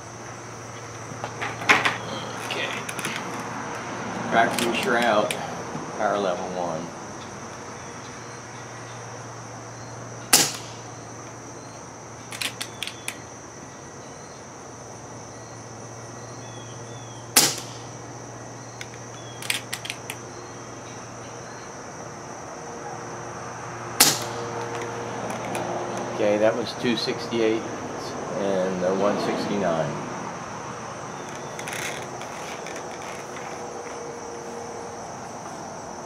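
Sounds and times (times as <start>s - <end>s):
air rifle shot crack: 10.3s - 11.0s, 17.4s - 18.0s, 24.0s - 24.6s.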